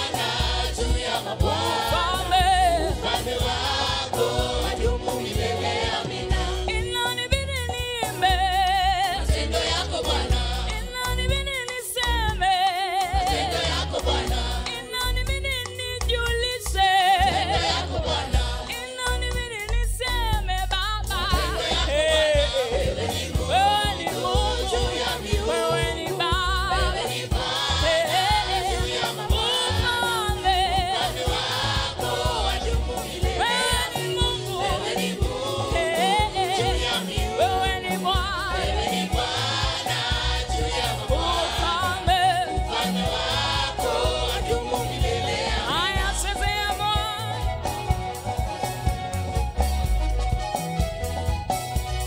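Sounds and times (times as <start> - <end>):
gospel band and singers: 0.0 - 52.0.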